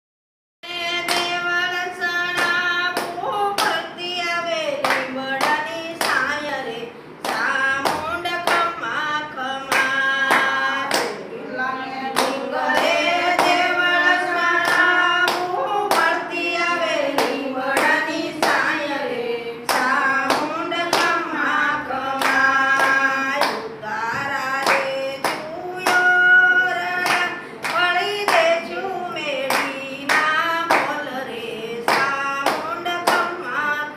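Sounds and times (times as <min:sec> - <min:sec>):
women singing in unison: 0:00.6 - 0:33.9
hand-clapping: 0:01.0 - 0:01.4, 0:02.3 - 0:03.8, 0:04.8 - 0:06.5, 0:07.2 - 0:08.8, 0:09.6 - 0:11.2, 0:12.1 - 0:13.6, 0:14.6 - 0:16.2, 0:19.7 - 0:21.2, 0:22.2 - 0:28.7, 0:29.4 - 0:31.1, 0:31.8 - 0:33.5.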